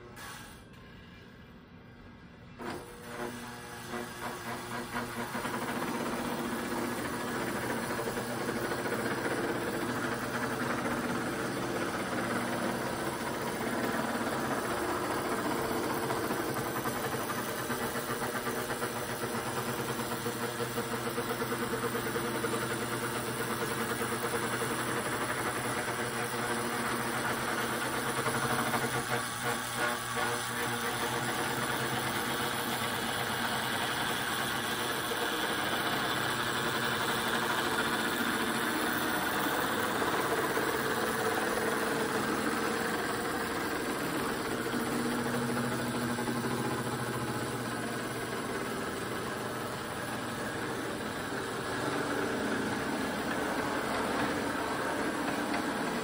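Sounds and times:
toy train motor hum: 2.7s - 56.0s.

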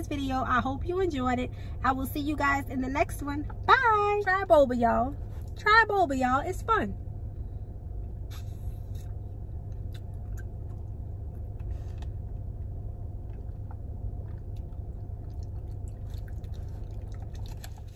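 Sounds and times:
steady low hum: 0.0s - 17.9s
person chewing food: 8.3s - 17.9s.

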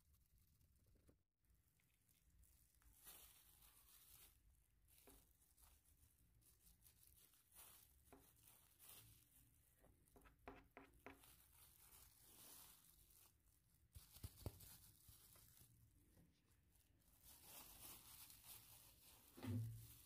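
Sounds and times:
plastic bags crinkling: 2.8s - 9.7s, 11.2s - 16.0s, 16.8s - 20.0s.

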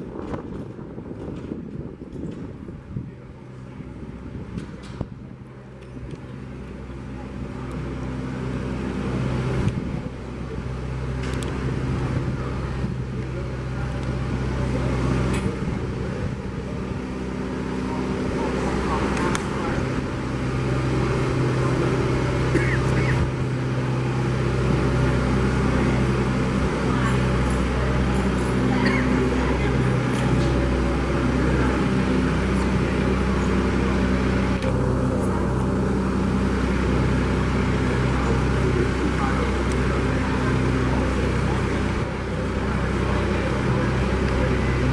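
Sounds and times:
tractor diesel engine running: 0.0s - 44.9s.

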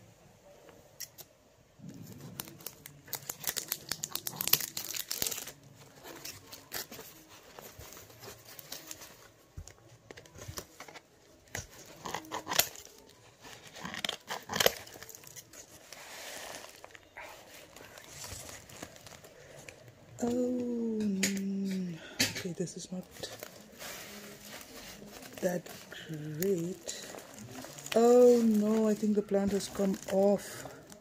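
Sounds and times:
paper crackling and tearing: 1.8s - 21.4s, 22.7s - 31.0s
scissors snipping paper: 10.1s - 15.9s.

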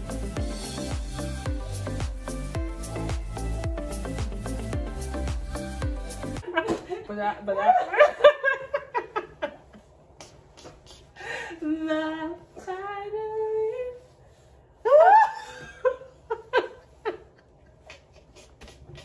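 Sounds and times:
laughter: 6.4s - 9.9s, 14.9s - 19.0s
woman singing: 11.6s - 14.0s.

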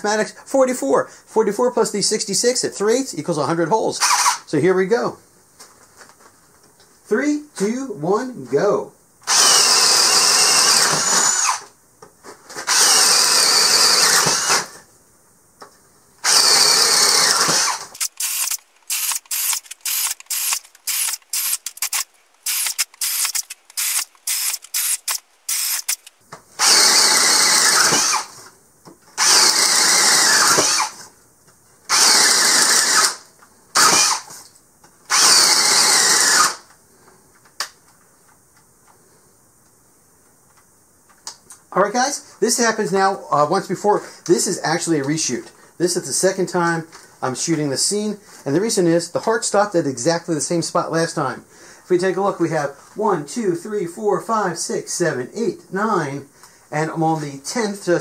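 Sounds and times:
cordless drill boring wood: 4.0s - 4.4s, 9.3s - 11.7s, 12.7s - 14.8s, 16.2s - 28.4s, 29.2s - 31.0s, 31.9s - 33.2s, 33.8s - 34.3s, 35.1s - 36.6s
drill stop-start pulses: 4.0s - 4.4s, 9.3s - 11.6s, 12.7s - 14.7s, 16.2s - 28.3s, 29.2s - 31.0s, 31.9s - 33.2s, 33.8s - 34.2s, 35.1s - 36.6s.

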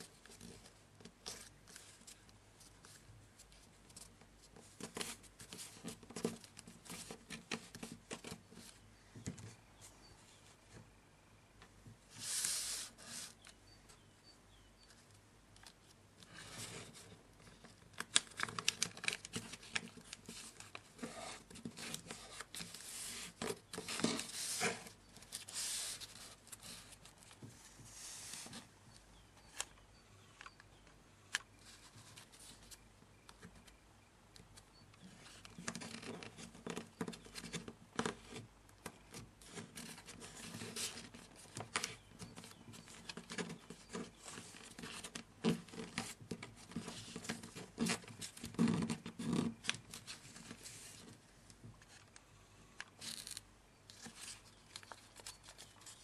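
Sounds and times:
paper rustling and crinkling: 15.6s - 28.7s, 39.0s - 51.2s, 53.0s - 56.0s.

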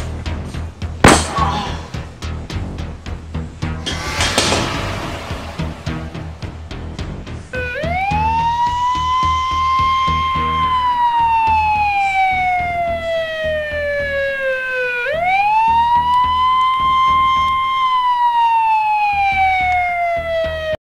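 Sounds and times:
low rhythmic pulse: 0.0s - 17.6s
wailing emergency siren: 7.5s - 20.8s.

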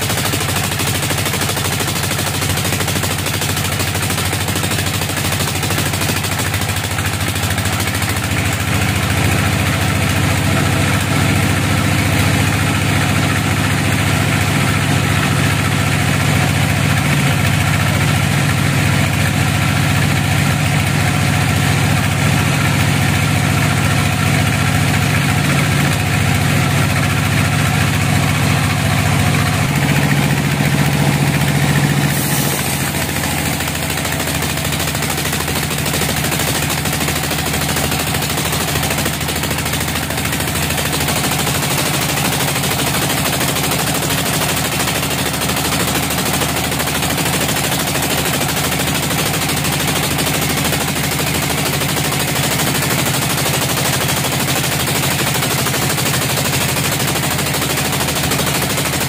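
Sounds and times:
sawmill machine drone: 0.0s - 59.0s
saw blade hissing through wood: 31.3s - 34.4s.

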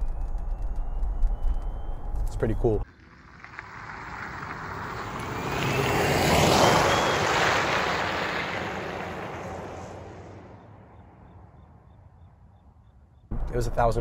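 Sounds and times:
car driving past: 2.8s - 13.0s.

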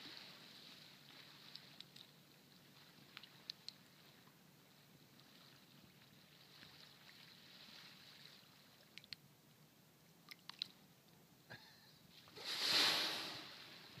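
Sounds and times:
water lapping at canoe hull: 0.0s - 9.2s.

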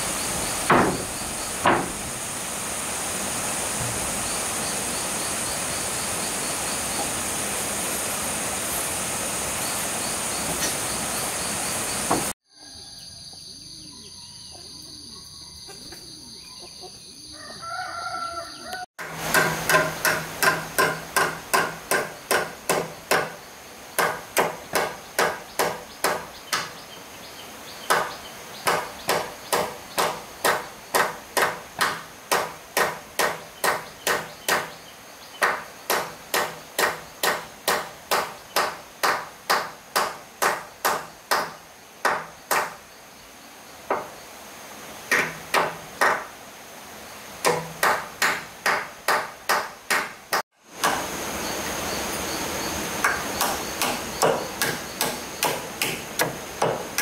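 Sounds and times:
high insect drone: 0.0s - 16.4s, 50.8s - 55.9s
hammer striking timber: 0.7s - 2.1s, 19.0s - 23.4s, 24.0s - 26.7s, 27.9s - 34.7s, 35.4s - 42.8s, 43.9s - 44.1s, 45.1s - 46.3s, 47.4s - 51.1s, 53.0s - 57.0s
rooster crowing: 12.5s - 13.5s, 17.3s - 18.9s.

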